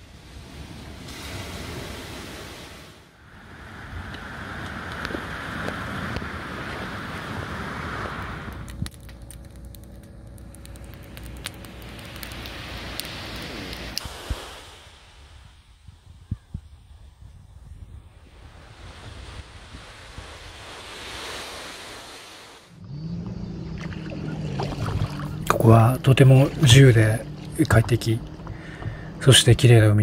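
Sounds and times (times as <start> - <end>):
wind noise: 3.3 - 21.7
sharp crackling pops: 8.5 - 14.3
surf: 18.1 - 30.0.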